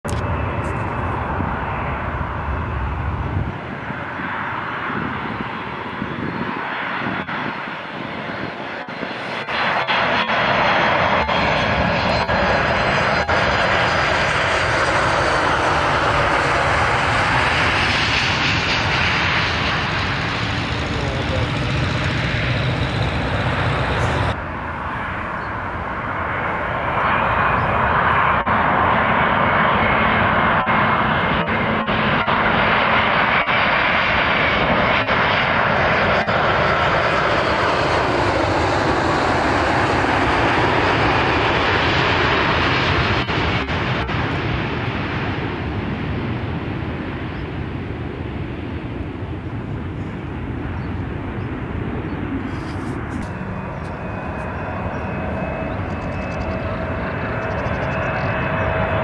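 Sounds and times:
jet airliner landing: 0:00.1 - 0:59.0.

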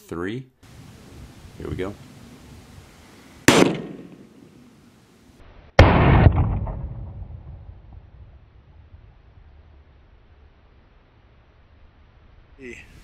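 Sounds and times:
slowed-down rifle shot: 0:03.5 - 0:04.3, 0:05.8 - 0:09.9
rifle shot: 0:03.5 - 0:04.5, 0:05.8 - 0:08.4.

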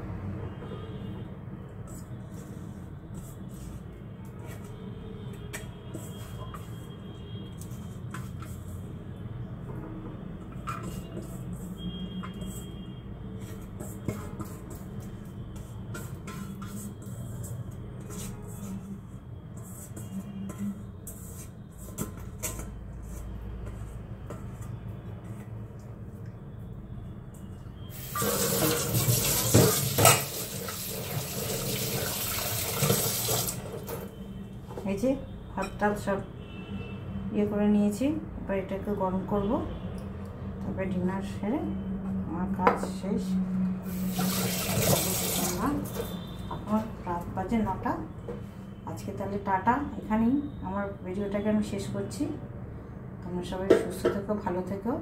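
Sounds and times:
metal pot clinking and scraping: 0:28.0 - 0:34.1
tap water running into sink: 0:28.0 - 0:34.1, 0:43.9 - 0:46.1.

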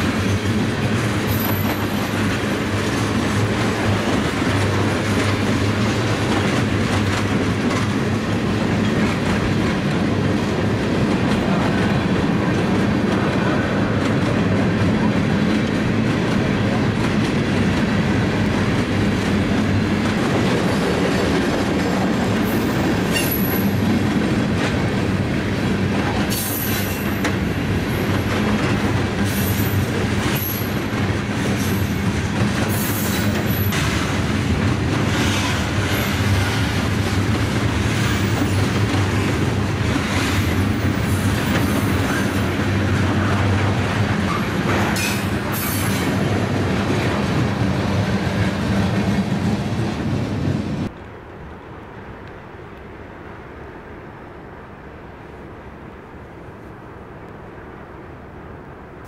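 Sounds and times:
train wheel clanks: 0:00.0 - 0:10.0, 0:20.0 - 0:24.8, 0:26.0 - 0:47.4
freight train rumbling past: 0:00.0 - 0:59.0.

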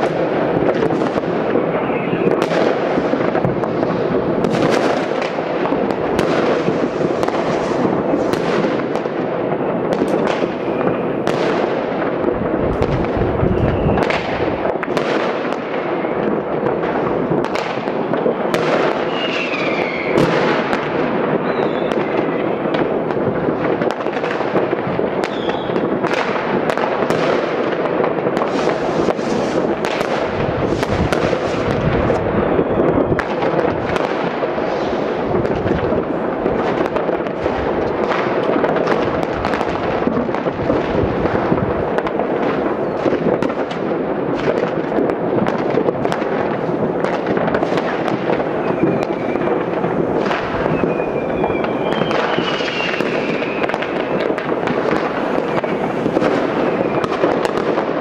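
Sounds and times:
fireworks crackling: 0:00.0 - 0:58.0
sharp firework bangs: 0:00.0 - 0:58.0
rocket whistle: 0:01.6 - 0:02.4, 0:13.4 - 0:14.2, 0:19.0 - 0:20.3, 0:21.4 - 0:22.6, 0:25.3 - 0:25.8, 0:48.6 - 0:49.5, 0:50.6 - 0:54.2.

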